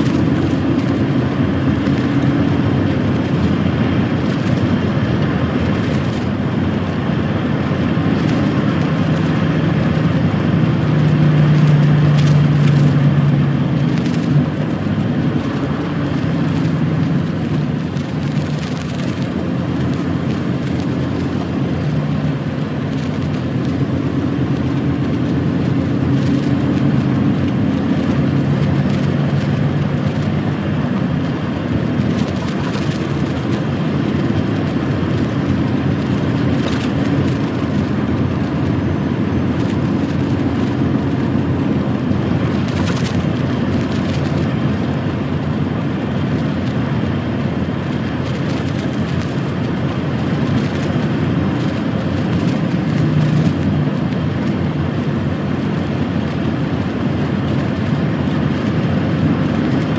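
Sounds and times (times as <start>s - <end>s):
lorry diesel engine running: 0.0s - 59.9s
road and tyre noise: 0.0s - 59.9s.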